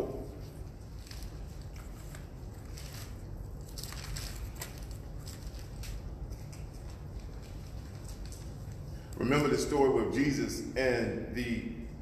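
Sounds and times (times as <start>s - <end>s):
low room rumble: 0.0s - 12.0s
thin pages rustling: 0.6s - 8.9s.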